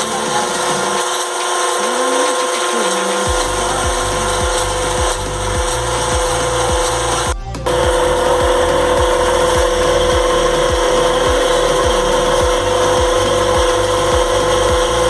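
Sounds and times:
background music with beat: 3.2 - 15.0.

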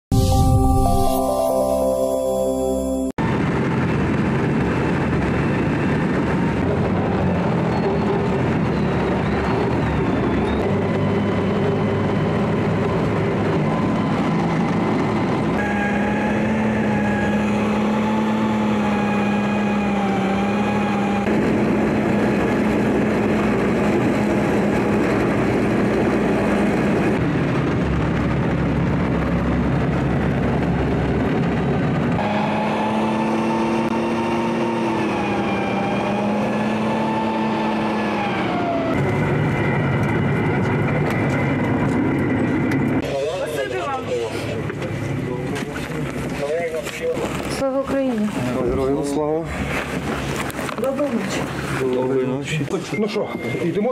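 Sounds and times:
military vehicle engine rumbling: 34.8 - 53.9.

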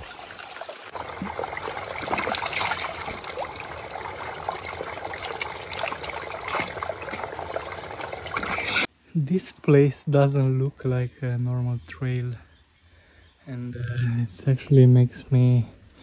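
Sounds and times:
water trickling and splashing: 0.0 - 8.9.

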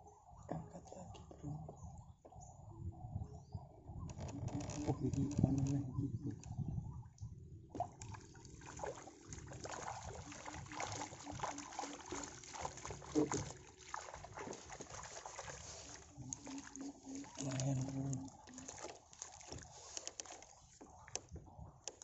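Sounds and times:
water trickling off net: 7.8 - 21.2
small fish splashing and flapping: 7.8 - 21.3.

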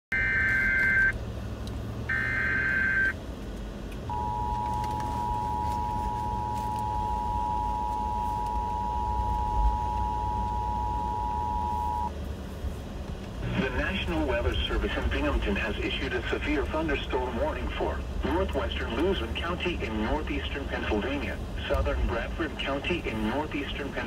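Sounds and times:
two-tone attention signal: 0.1 - 1.1, 2.1 - 3.1, 4.1 - 12.1
low car hum: 0.1 - 24.0.

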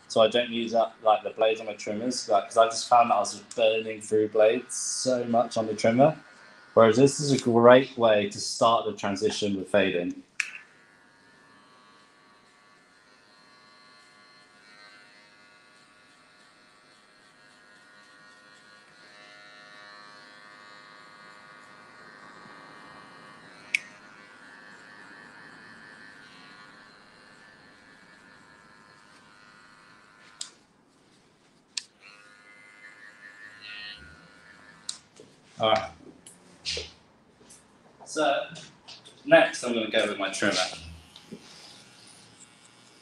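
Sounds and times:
electric hair clipper buzzing: 0.0 - 43.0
sharp click: 10.4 - 10.7.

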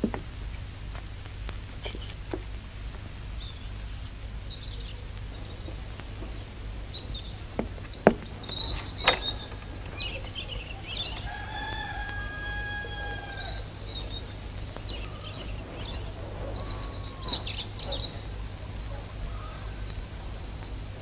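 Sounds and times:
light knocks: 0.0 - 0.3, 7.5 - 10.1
faint bird chirps: 3.4 - 21.0.

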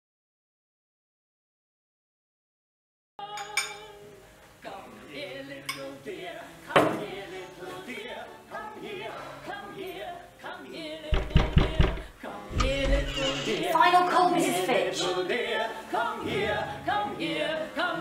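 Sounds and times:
music with singing voices: 3.2 - 18.0
heavy low thumps: 11.2 - 13.2.

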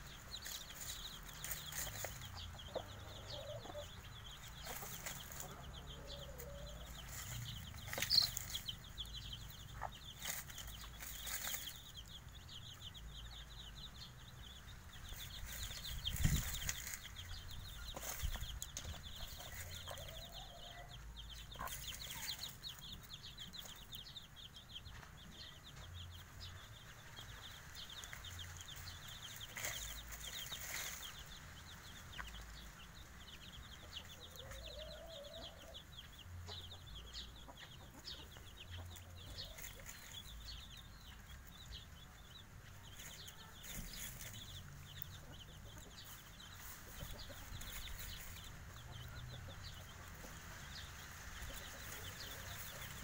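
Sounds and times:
hen clucking: 0.0 - 13.5, 15.1 - 24.1, 33.6 - 41.8, 42.7 - 53.0
chicks peeping: 0.0 - 53.0
rustles and knocks of birds scratching: 0.2 - 3.0, 4.4 - 12.2, 15.1 - 20.8, 27.4 - 32.6, 38.8 - 41.8, 42.5 - 53.0.

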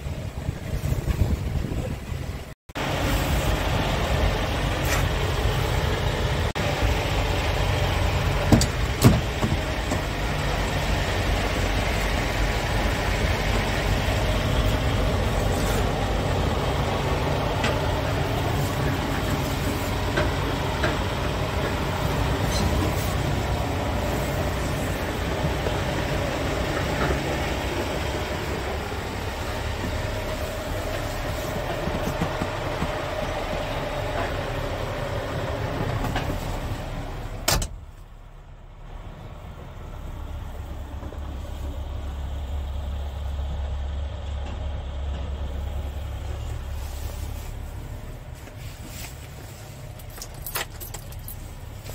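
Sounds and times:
diesel engine idling: 0.0 - 51.9.

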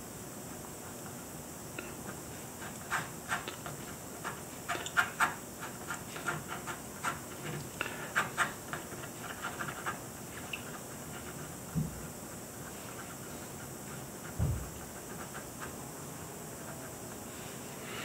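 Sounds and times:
pen scratching on paper: 2.0 - 10.0, 12.6 - 15.7.

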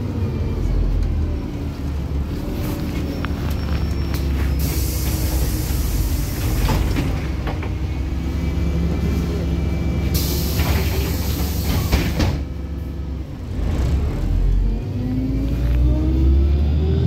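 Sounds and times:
bus diesel engine drone: 0.0 - 17.0
rattles and road noise: 0.0 - 17.0
hiss: 4.6 - 6.6, 10.2 - 12.2.

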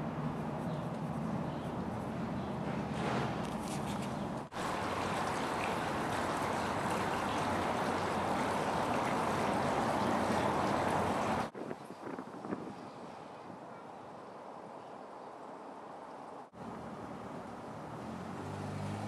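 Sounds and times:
water splashing into fountain basin: 3.8 - 11.5.

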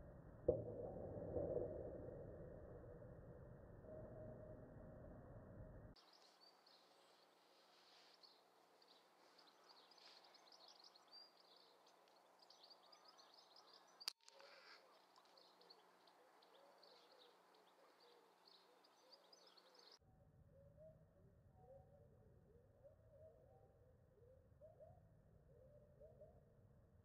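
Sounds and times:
small birds chirping: 6.0 - 20.0.

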